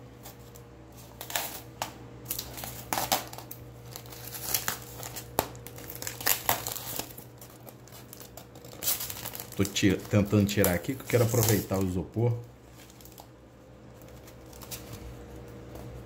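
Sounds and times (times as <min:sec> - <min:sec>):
packing tape crinkling and tearing: 0:00.2 - 0:16.0.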